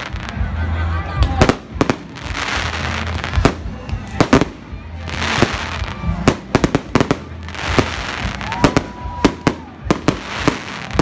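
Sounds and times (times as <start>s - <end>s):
firework bangs: 1.3s - 11.0s.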